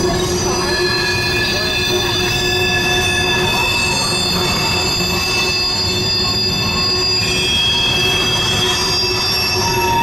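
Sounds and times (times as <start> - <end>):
high-pitched wheel squeals: 0.0 - 10.0
low rumble of train wheels: 0.0 - 10.0.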